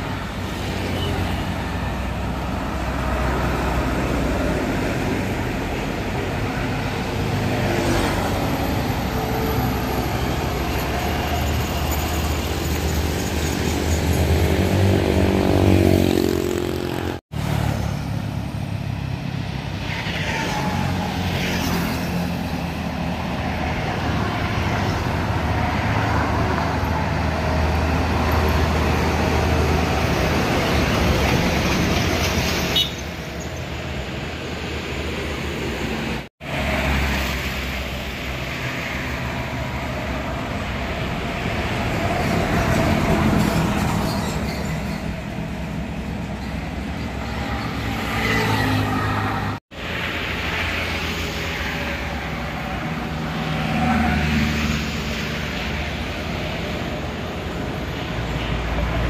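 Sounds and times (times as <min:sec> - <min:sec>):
diesel trucks passing: 0:00.0 - 0:59.0
motorcycles passing: 0:13.3 - 0:22.8.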